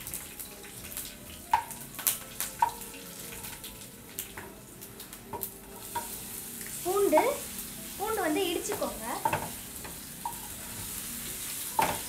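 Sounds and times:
hot oil sizzling: 0:00.0 - 0:12.0.

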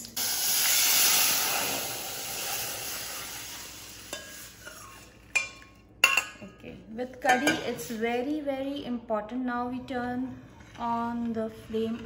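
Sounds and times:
oil sizzling in a saucepan: 0:00.0 - 0:05.2.

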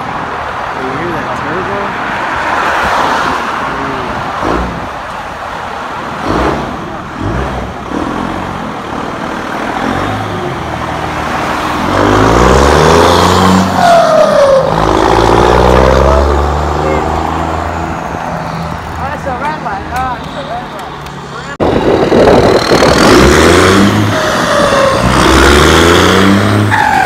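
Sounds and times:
pickup truck engine revving: 0:06.2 - 0:18.0, 0:21.6 - 0:27.0.

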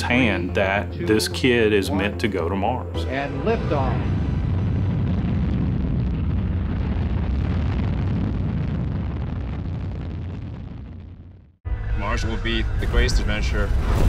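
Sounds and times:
rocket engines roaring: 0:03.0 - 0:09.2.

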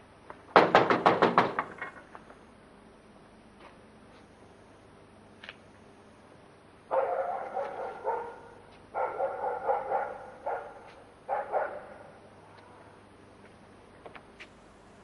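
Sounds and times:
dog barking: 0:06.9 - 0:12.2.

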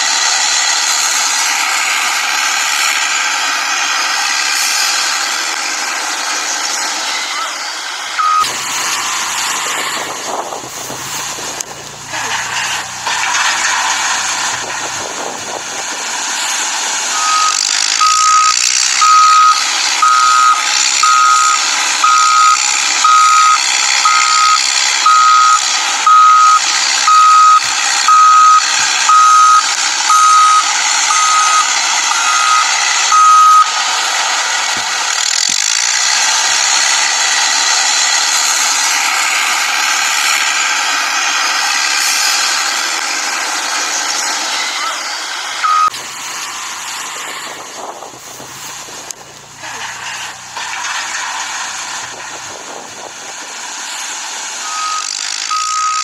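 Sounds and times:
electronic reversing beep: 0:08.2 - 0:08.6, 0:17.1 - 0:33.8, 0:45.6 - 0:46.0, 0:54.6 - 0:56.0.

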